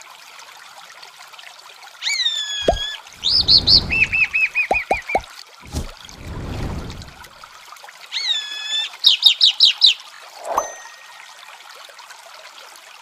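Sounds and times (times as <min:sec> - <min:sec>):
trickling water: 0:00.0 - 0:13.0.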